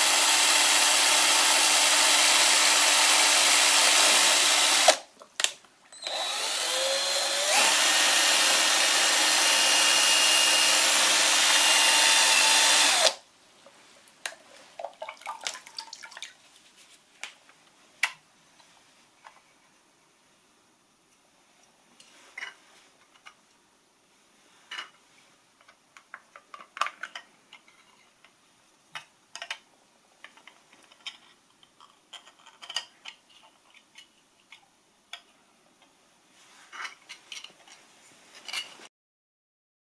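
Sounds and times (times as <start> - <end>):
plastic parts clicking and tapping: 25.6 - 36.0.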